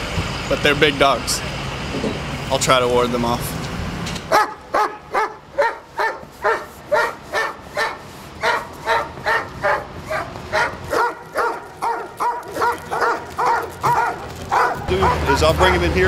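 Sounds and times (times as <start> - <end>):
dog barking rapidly: 4.3 - 15.9.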